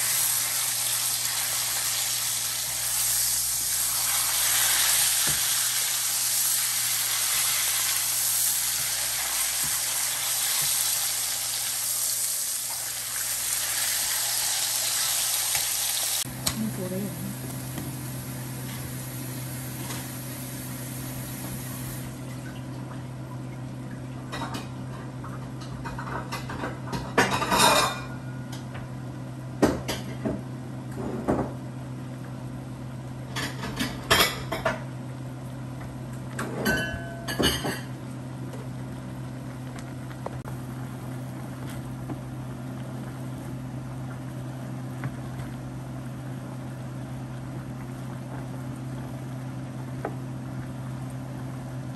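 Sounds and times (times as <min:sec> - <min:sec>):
steak sizzling in a frying pan: 0:00.0 - 0:16.3
pot boiling: 0:00.0 - 0:22.7, 0:35.2 - 0:51.9.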